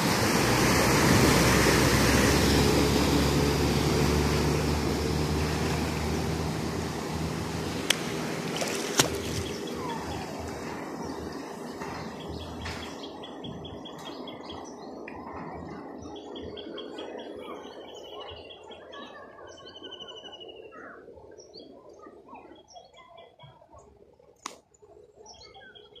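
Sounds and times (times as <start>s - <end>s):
birds chirping and trilling: 9.0s - 23.4s, 25.2s - 26.0s.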